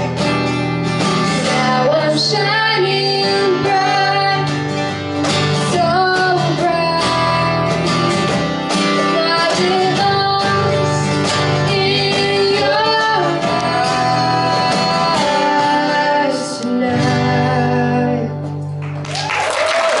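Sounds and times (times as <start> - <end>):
strummed acoustic guitars: 0.0 - 19.1
woman and man singing: 1.4 - 5.0, 5.6 - 18.5.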